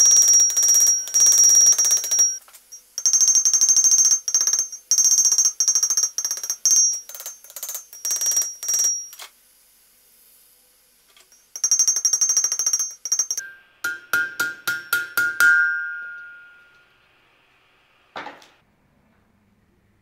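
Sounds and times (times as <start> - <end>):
anvil ringing: 11.4 - 16.9
hammer striking on anvil: 11.6 - 16.9.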